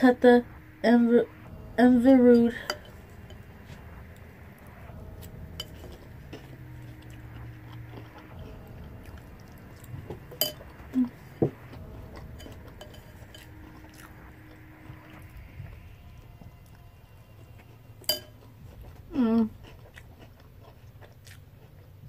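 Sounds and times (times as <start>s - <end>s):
chewing crunchy cereal: 17.6s - 22.0s.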